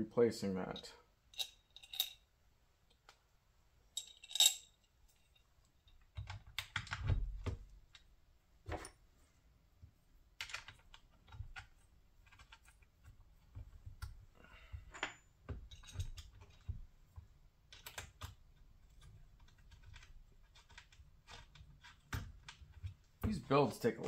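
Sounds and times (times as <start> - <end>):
metal parts clicking and tapping: 0.7 - 2.2, 4.0 - 8.1, 10.4 - 23.5.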